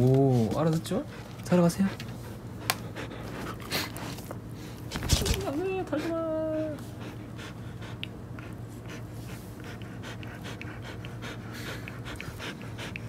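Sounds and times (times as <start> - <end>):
dog panting: 0.1 - 13.0.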